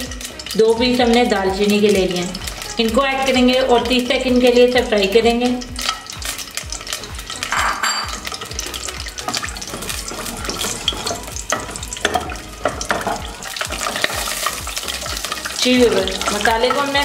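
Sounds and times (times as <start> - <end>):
spices sizzling in hot oil: 0.0 - 17.0
wooden spatula stirring in pot: 5.8 - 17.0.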